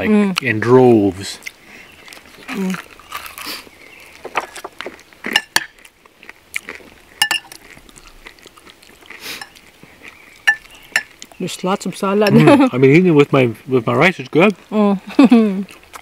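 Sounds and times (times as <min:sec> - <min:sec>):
metal spoon clinking on glass: 0:07.2 - 0:07.6, 0:10.5 - 0:11.1.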